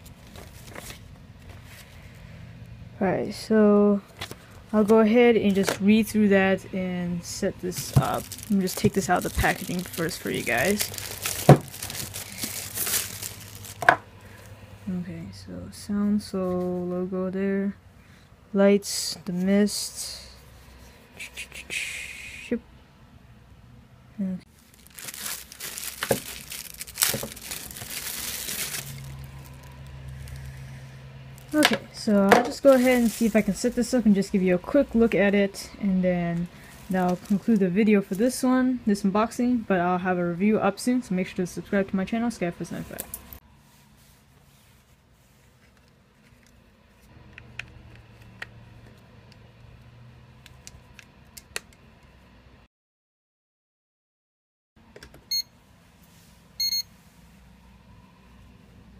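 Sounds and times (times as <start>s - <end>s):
low steady hum: 0.0s - 52.4s
plastic wrapping crinkling: 7.6s - 14.0s, 24.5s - 30.6s, 32.2s - 33.8s, 36.4s - 38.2s.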